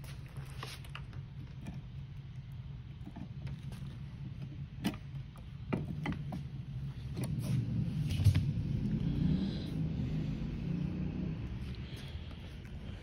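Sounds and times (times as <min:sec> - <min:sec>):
handling knocks and rumble: 0:00.0 - 0:09.7
steady low hum: 0:00.0 - 0:13.0.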